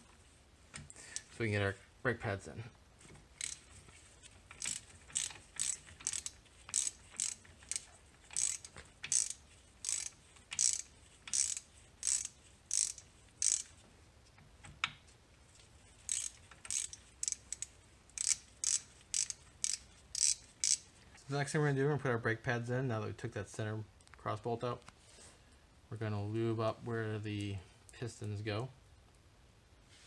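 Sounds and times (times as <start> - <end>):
ratchet wrench clicking: 3.4 - 3.8, 4.5 - 13.8, 16.0 - 20.8.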